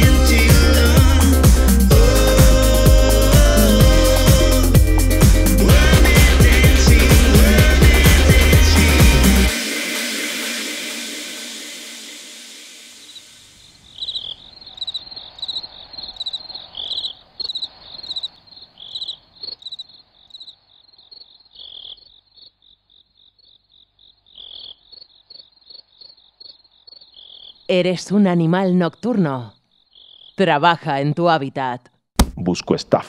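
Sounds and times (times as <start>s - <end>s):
crickets chirping: 12.7s - 27.7s, 29.7s - 30.4s
frogs croaking: 12.9s - 27.9s, 28.8s - 30.5s.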